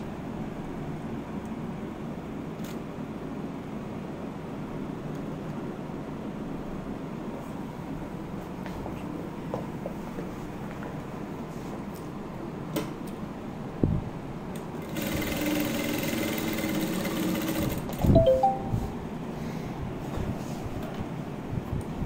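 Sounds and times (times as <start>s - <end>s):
sewing machine stitching: 14.8s - 17.9s
brief high tones: 18.2s - 19.1s.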